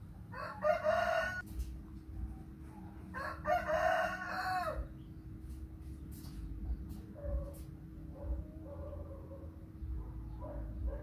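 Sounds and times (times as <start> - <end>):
rooster crowing: 0.3 - 1.5, 3.0 - 4.9.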